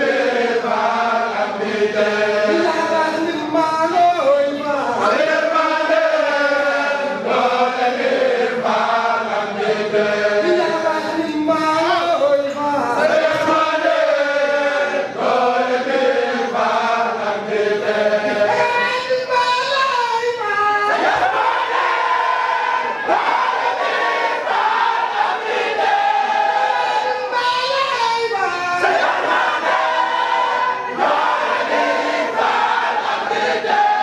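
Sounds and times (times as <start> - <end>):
men chanting together: 4.6 - 11.2, 13.0 - 18.7, 20.8 - 27.2, 28.7 - 34.0.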